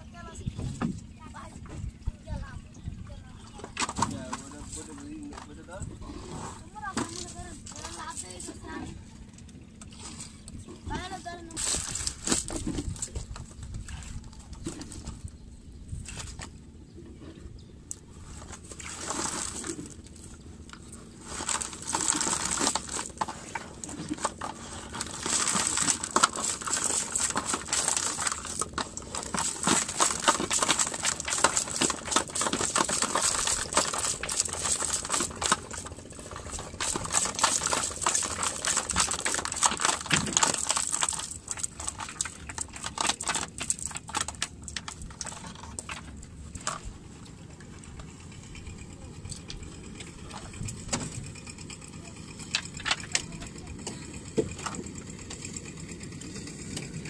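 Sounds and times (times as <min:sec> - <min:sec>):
wet fishing net rustling: 0:11.6 - 0:15.2, 0:18.1 - 0:47.3
dense rapid clicks: 0:20.6 - 0:46.8.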